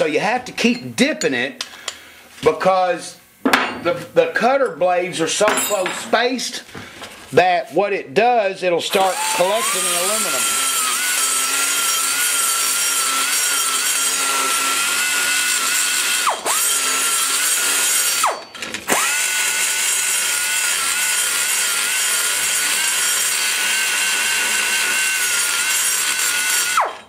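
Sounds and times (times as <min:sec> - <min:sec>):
die grinder whining: 0:08.9 - 0:27.0.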